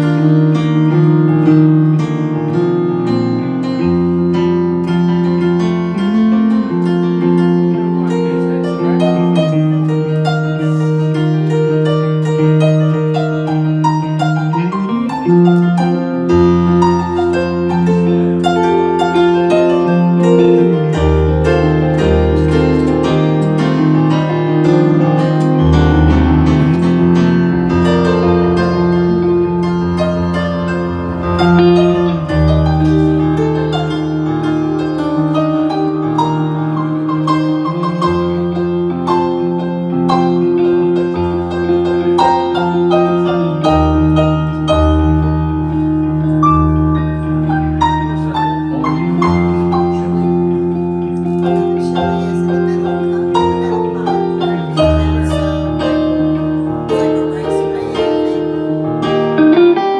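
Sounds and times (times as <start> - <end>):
low bass line: 0.0 - 57.6
electric guitar: 0.0 - 59.9
keyboard chords: 0.0 - 59.9.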